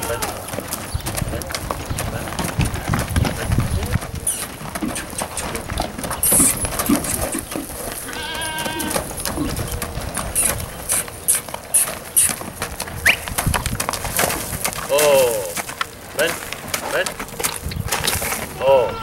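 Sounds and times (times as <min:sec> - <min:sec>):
quavering animal call: 0:00.0 - 0:00.7, 0:04.2 - 0:12.4, 0:18.5 - 0:19.0
horse hooves thudding on dirt: 0:00.0 - 0:19.0.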